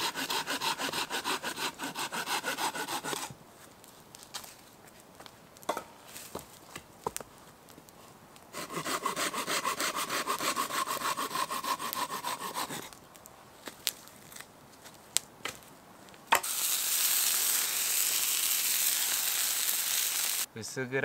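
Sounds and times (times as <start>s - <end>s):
hand saw cutting wood: 0.0s - 3.3s, 8.5s - 13.0s
chicken wings sizzling in skillet: 16.4s - 20.5s.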